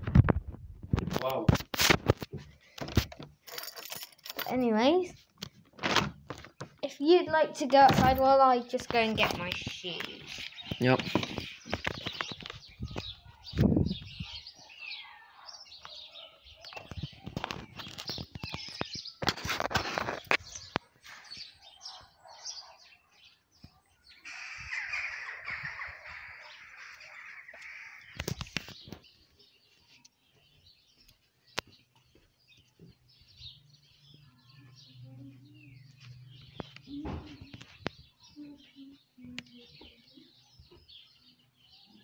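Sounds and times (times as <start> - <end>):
rustling noise: 0.0 - 3.6, 5.1 - 14.2, 16.8 - 21.5, 28.2 - 30.0
small birds chirping: 4.4 - 42.0.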